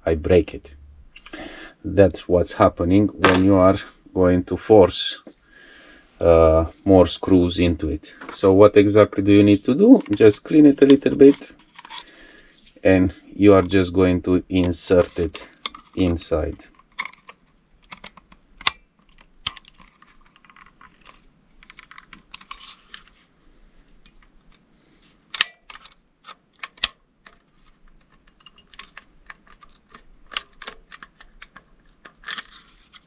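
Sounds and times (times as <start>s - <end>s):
plastic clicks taps and scraping: 15.6s - 16.0s, 16.7s - 23.1s, 25.3s - 33.0s
plastic part snapping into place: 25.3s - 27.0s.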